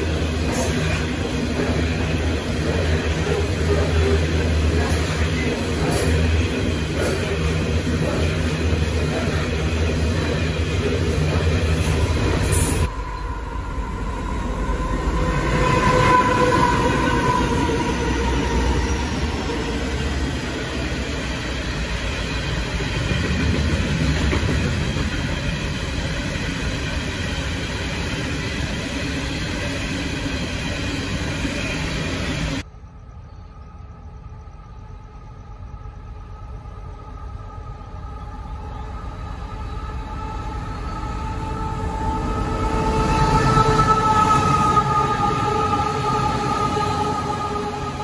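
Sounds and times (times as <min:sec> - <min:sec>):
train horn: 0:12.5 - 0:19.6, 0:36.4 - 0:48.0.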